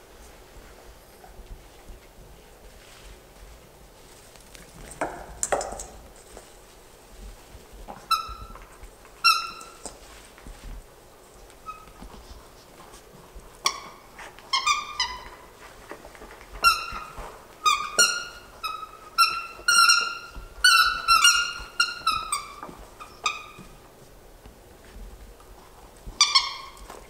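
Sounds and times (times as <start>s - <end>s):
puppies yipping and squealing: 16.6s - 23.8s, 26.2s - 26.9s.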